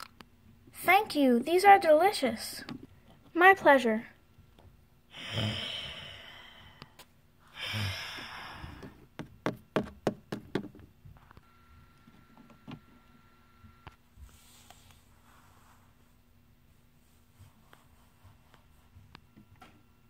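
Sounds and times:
person sighing: 5.1 - 6.9, 7.5 - 9.0.

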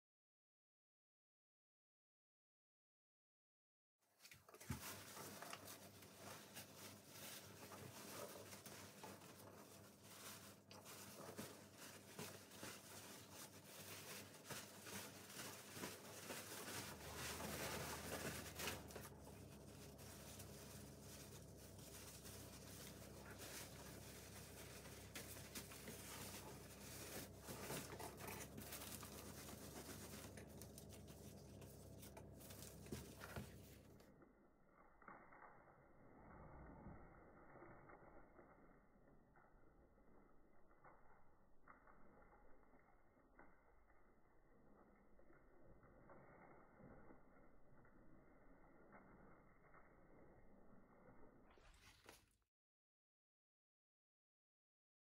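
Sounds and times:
paper crinkling and tearing: 4.3 - 34.0.

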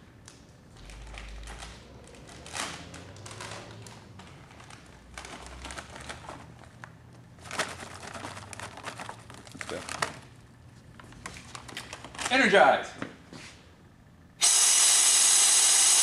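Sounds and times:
plastic package crinkling: 0.3 - 10.4.

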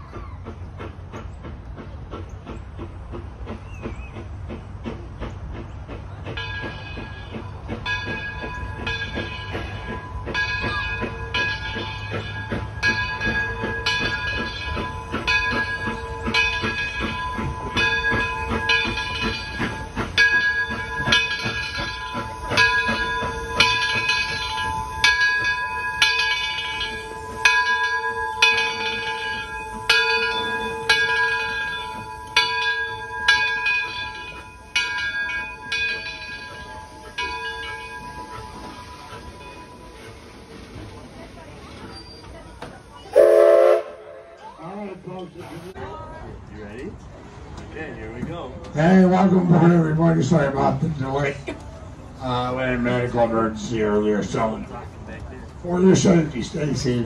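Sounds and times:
train low rumble: 0.0 - 57.0
locomotive bell ringing: 6.3 - 45.4, 52.2 - 54.9, 55.6 - 57.0.

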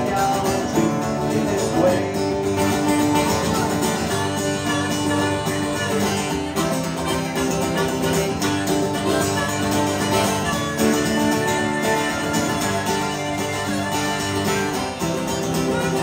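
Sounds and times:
strummed acoustic guitar: 0.0 - 16.0
harmonica playing chords: 2.4 - 16.0.

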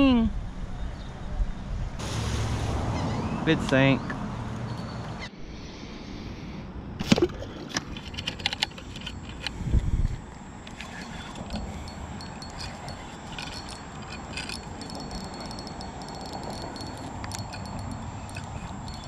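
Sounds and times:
high insect trill: 8.8 - 19.0
fishing reel clicks: 10.7 - 19.0.

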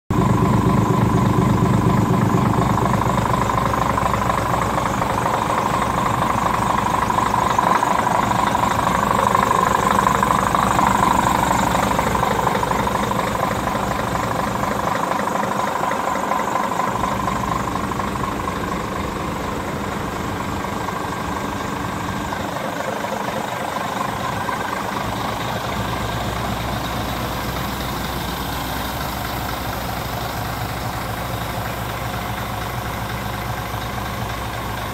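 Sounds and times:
diesel truck engine idling: 0.1 - 34.9.

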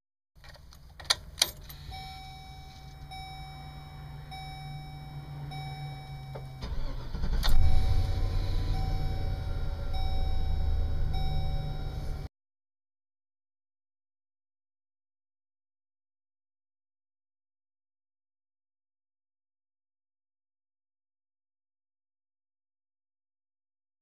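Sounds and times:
ignition key clicks: 0.4 - 2.0, 6.1 - 7.7
engine cranking and idling: 0.8 - 12.3
repeating warning chime: 1.8 - 12.3.

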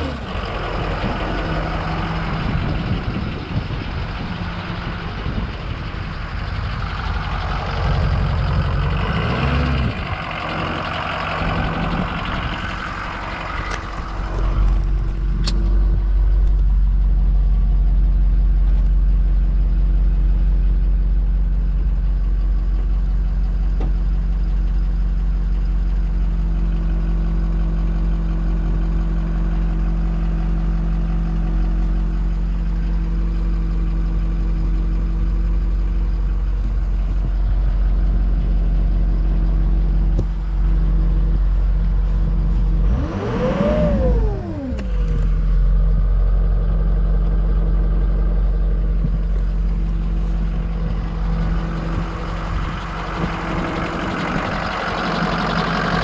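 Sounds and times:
diesel engine idling and revving: 0.0 - 56.0.

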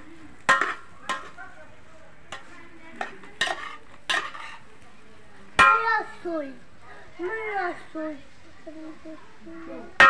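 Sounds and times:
faint frying sizzle: 0.0 - 10.0
metal spatula scraping metal pot: 0.5 - 1.4, 2.3 - 4.7.

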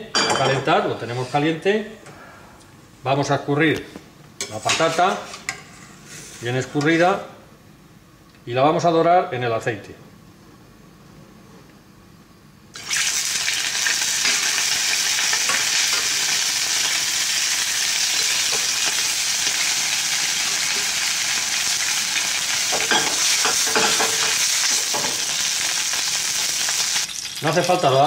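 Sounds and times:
potatoes sizzling in hot oil: 12.8 - 28.0.

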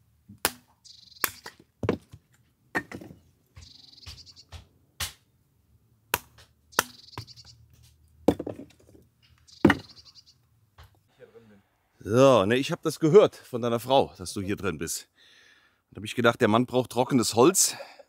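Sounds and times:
hatchet chopping wood: 0.3 - 5.3, 6.1 - 7.4.

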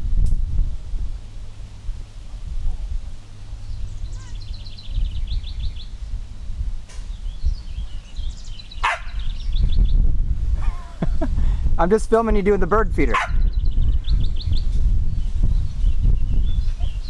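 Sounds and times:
low rumble: 0.0 - 17.0
songbird trilling: 3.6 - 6.2, 7.1 - 10.0
sharp click: 6.9 - 7.1.

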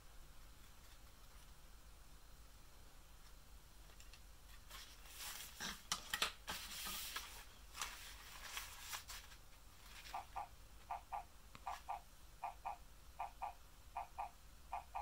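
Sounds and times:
fabric rustling and crinkling: 4.5 - 10.2.

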